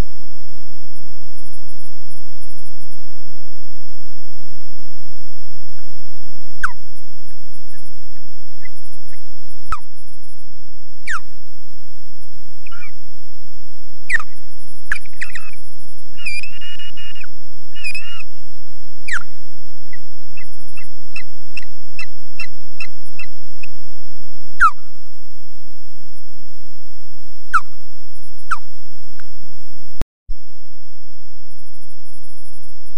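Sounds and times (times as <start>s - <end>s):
high electronic whine: 0.0s - 32.9s
low hum: 0.0s - 32.9s
osprey alarm calls: 11.0s - 11.3s, 12.7s - 13.0s, 14.1s - 15.6s, 16.2s - 18.4s, 19.1s - 19.3s, 19.9s - 23.3s, 24.6s - 24.8s.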